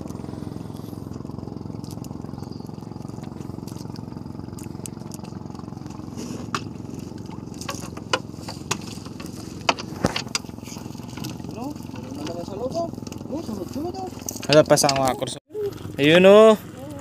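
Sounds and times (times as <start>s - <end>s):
boat engine running: 0.0s - 17.0s
sharp knocks and clicks: 7.6s - 10.5s.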